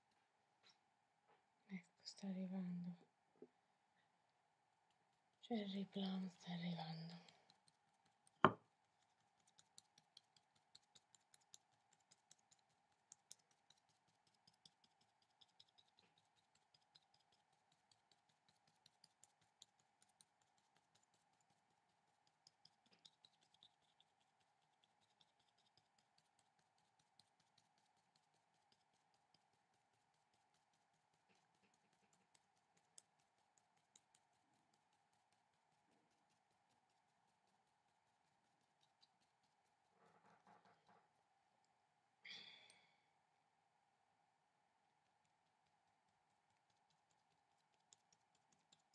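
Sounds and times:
faint steady hum: 0:00.0 - 0:48.9
pencil strokes on paper: 0:05.0 - 0:40.0
soft tapping: 0:06.7 - 0:21.1, 0:38.8 - 0:41.8.

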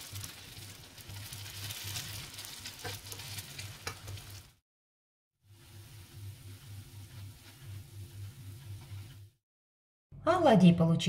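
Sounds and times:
pancakes sizzling in oil: 0:00.0 - 0:04.6, 0:05.4 - 0:09.3.

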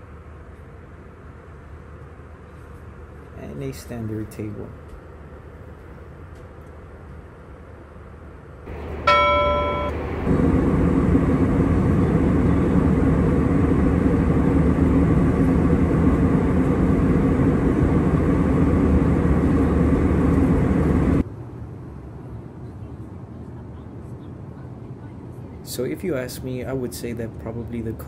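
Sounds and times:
thin high whine: 0:08.7 - 0:10.7
airliner cabin rush: 0:08.7 - 0:21.2
bell-like chime: 0:09.0 - 0:10.1.

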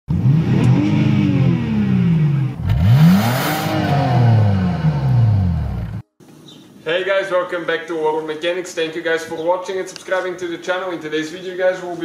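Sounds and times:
car engine revving: 0:00.1 - 0:06.0.

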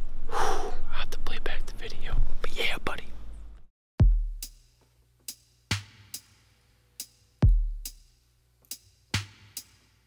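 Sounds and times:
slow electronic drum beat: 0:04.0 - 0:10.0.

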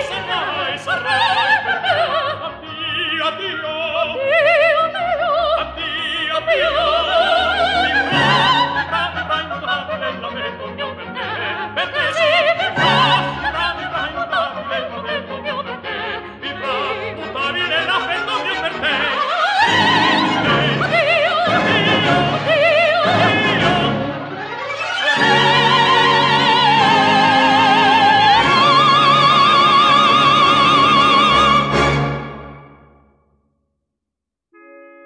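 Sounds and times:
operatic singing with vibrato: 0:00.0 - 0:32.8
orchestral accompaniment: 0:05.4 - 0:33.1.

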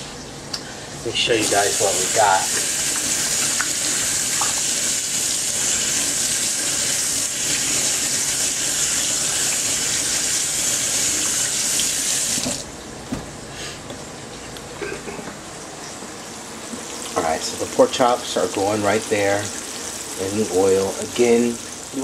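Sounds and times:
kitchen tap running: 0:01.2 - 0:12.7.

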